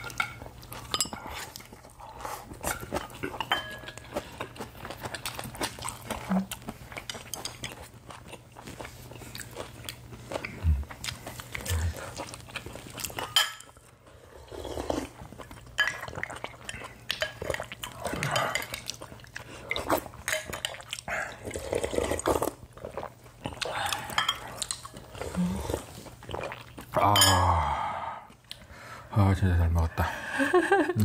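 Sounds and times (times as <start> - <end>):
utensils clinking on ceramic bowls: 0.0 - 1.4, 2.7 - 4.0, 27.1 - 27.5
chewing: 0.0 - 27.0.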